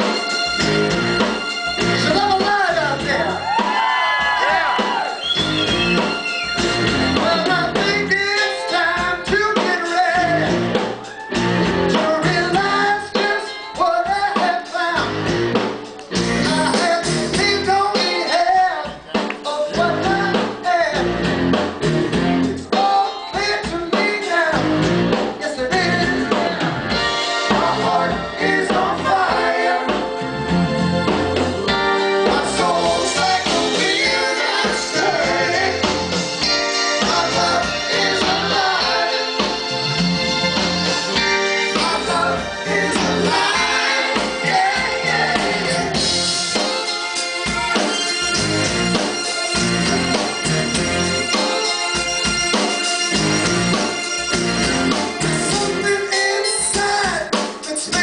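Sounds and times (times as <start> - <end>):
live rock band playing: 0.0 - 58.0
man singing lead vocal: 2.0 - 3.6, 7.1 - 10.8, 11.9 - 15.2, 16.4 - 21.2, 22.7 - 30.0, 32.2 - 39.5, 41.7 - 46.4, 55.2 - 58.0.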